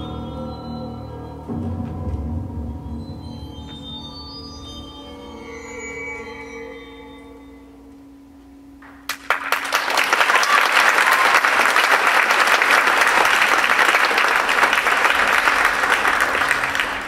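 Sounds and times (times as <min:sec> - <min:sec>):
audience applauding: 0:08.8 - 0:17.0.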